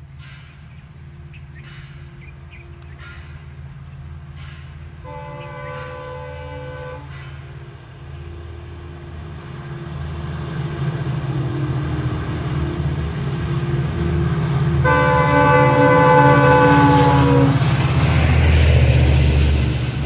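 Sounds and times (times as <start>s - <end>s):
locomotive engine rumble: 0.0s - 20.0s
locomotive air horn: 5.0s - 7.6s, 14.7s - 17.9s.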